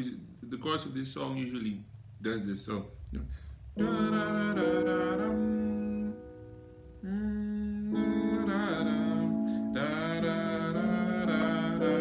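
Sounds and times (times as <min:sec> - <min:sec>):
keyboard chords: 0:03.7 - 0:12.0.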